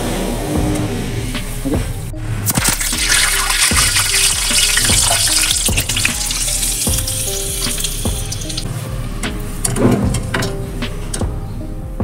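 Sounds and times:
leaves sizzling in hot oil: 2.5s - 8.7s.

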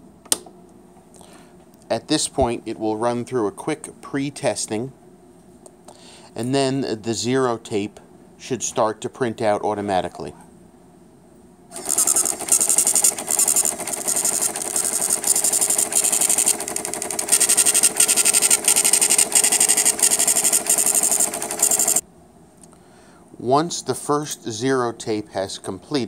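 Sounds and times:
tape printer buzzing and rattling: 11.7s - 22.0s.

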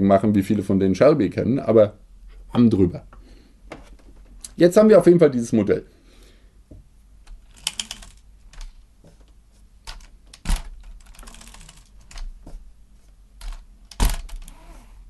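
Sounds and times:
plastic toy clicks and knocks: 7.3s - 8.7s.

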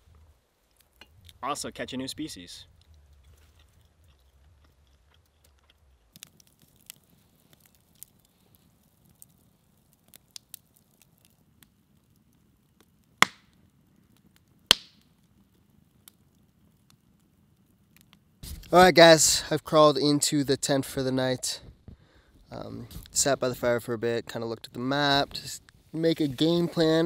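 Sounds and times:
campfire crackling: 0.0s - 27.0s
loud sharp fire pops: 13.2s - 15.2s.

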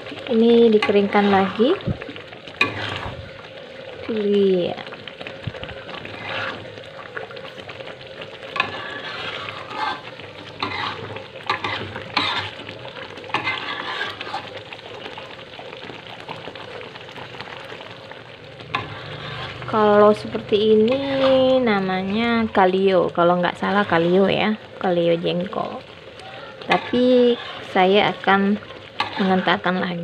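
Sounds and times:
curry simmering and sizzling: 0.0s - 30.0s
metal spatula scraping wok: 0.6s - 1.8s, 2.6s - 3.3s, 6.0s - 6.8s, 8.5s - 12.7s, 13.3s - 14.6s, 18.6s - 22.8s, 23.5s - 24.5s, 26.5s - 29.8s.

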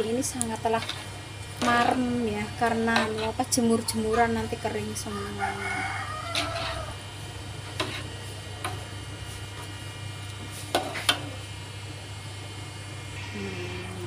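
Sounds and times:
metal spatula scraping a wok: 6.2s - 6.9s, 7.7s - 8.2s.

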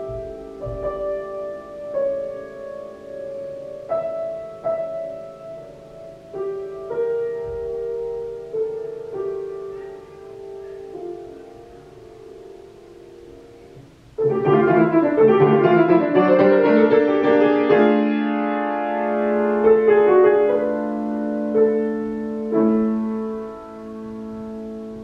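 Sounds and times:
grand piano playing: 0.0s - 25.0s.

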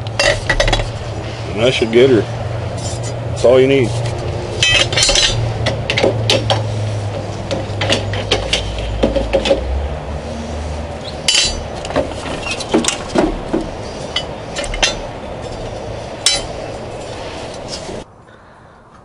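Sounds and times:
blade scraping: 0.4s - 9.0s, 10.1s - 18.0s
metallic clinks and knocks: 4.6s - 6.7s, 11.3s - 16.7s.

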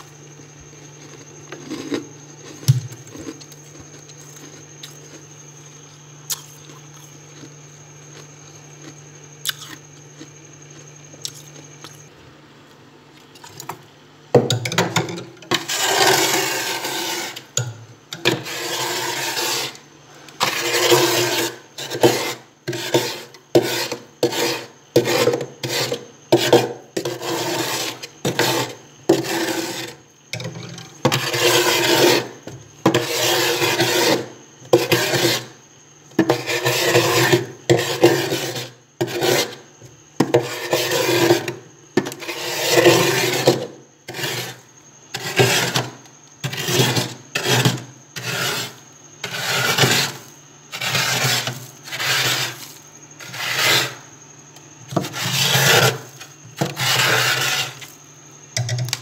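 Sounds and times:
frost being scraped: 15.5s - 17.5s, 18.3s - 19.8s, 20.4s - 30.0s, 31.1s - 35.6s, 36.3s - 39.6s, 40.4s - 41.5s, 42.2s - 44.6s, 45.2s - 54.0s, 55.0s - 57.9s.

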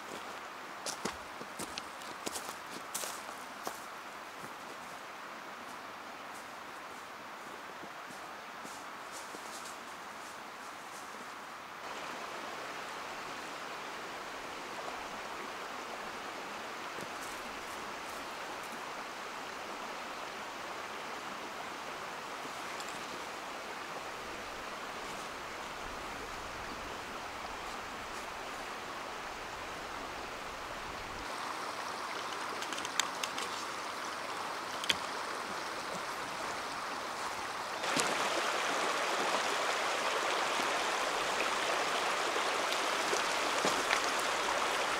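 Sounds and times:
stream water running: 0.0s - 44.9s
faint clicks: 32.1s - 33.7s.

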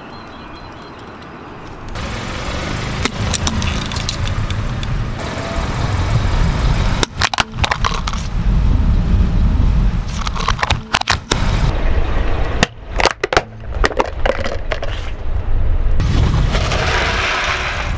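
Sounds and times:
car engine and tyres rumbling: 0.0s - 17.9s
toy cars cracking and snapping: 3.0s - 4.4s, 7.0s - 8.3s.

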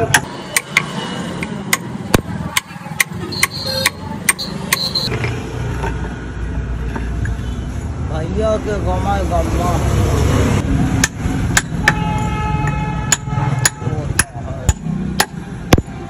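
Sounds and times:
hammer striking stone: 11.0s - 15.9s.

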